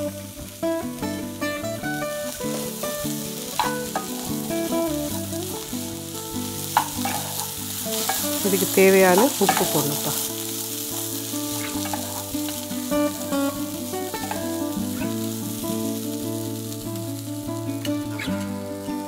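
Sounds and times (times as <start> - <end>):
background music: 0.0 - 19.0
vegetables sizzling in a pan: 0.0 - 19.0
spatula stirring: 2.2 - 15.1.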